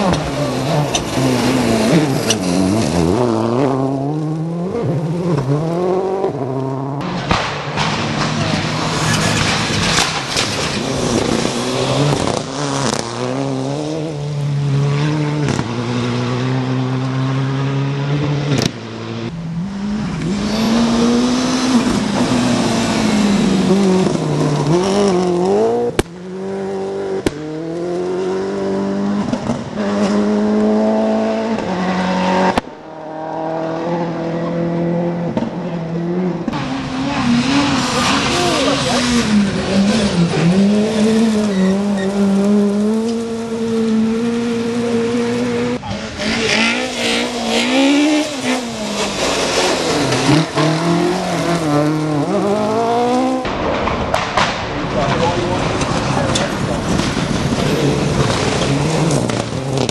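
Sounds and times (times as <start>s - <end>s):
rally car engines revving: 0.0s - 59.9s
gravel spraying: 46.9s - 51.5s.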